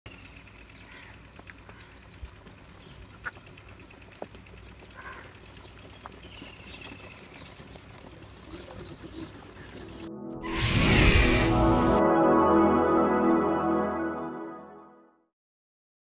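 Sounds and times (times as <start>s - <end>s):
crows cawing: 0.8s - 2.1s, 4.8s - 5.5s.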